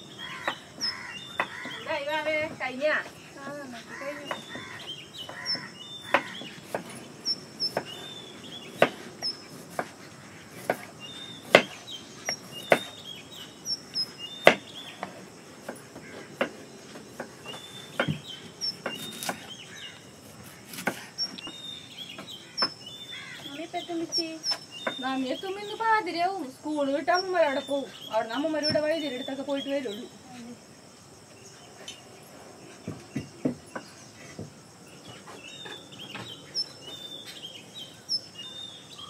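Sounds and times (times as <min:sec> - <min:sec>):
birds chirping: 0:00.0 - 0:39.0
knife chopping on wooden board: 0:04.2 - 0:07.0, 0:08.8 - 0:13.0, 0:14.0 - 0:19.5, 0:20.3 - 0:21.6.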